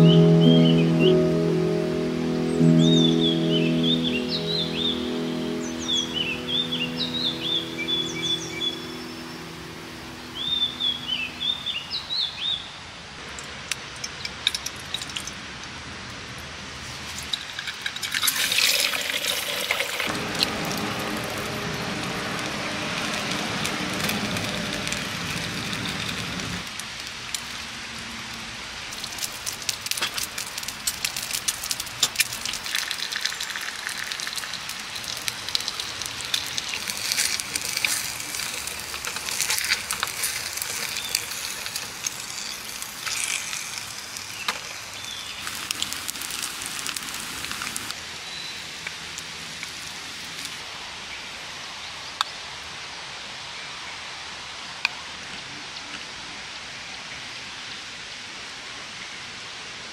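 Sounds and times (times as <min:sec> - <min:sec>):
fire crackling and popping: 0:17.0 - 0:48.0
steady low rumble: 0:20.1 - 0:26.7.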